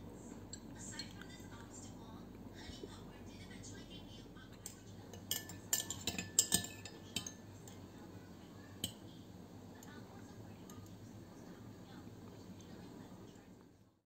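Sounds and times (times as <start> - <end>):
spoon clinking in a glass: 4.6 - 7.8.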